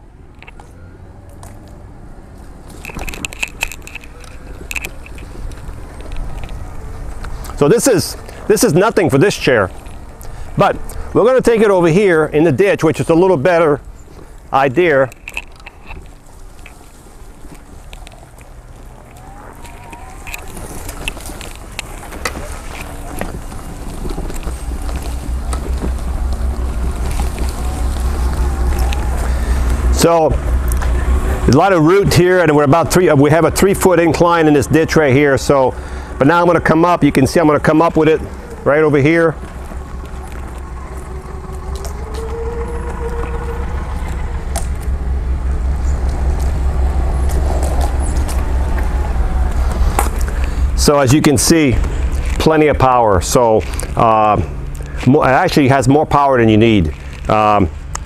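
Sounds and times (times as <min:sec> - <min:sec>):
clicks and crackles under tyres: 0:00.1 - 0:58.0
low wind rumble on microphone: 0:01.5 - 0:58.0
power chair motors whining: 0:16.2 - 0:31.5, 0:37.3 - 0:50.9.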